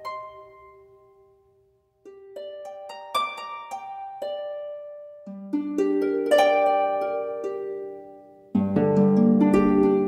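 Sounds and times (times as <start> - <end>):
plucked string music: 2.0 - 10.0.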